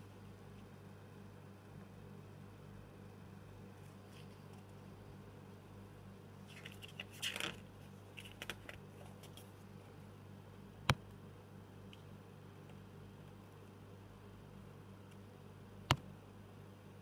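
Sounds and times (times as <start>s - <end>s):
low steady hum: 0.0s - 17.0s
paper pages turning: 6.5s - 7.6s.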